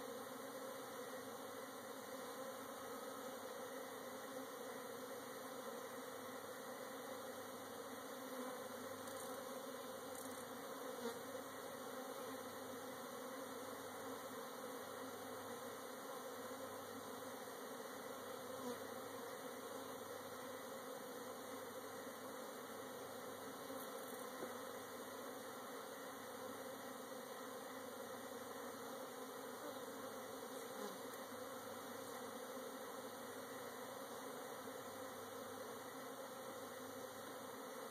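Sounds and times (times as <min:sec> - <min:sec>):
bees buzzing: 0:00.0 - 0:37.9.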